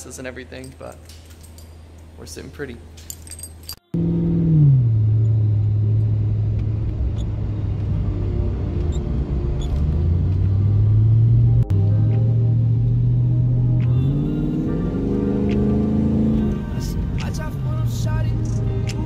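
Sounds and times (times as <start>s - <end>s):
car engine droning in cabin: 3.9s - 19.0s.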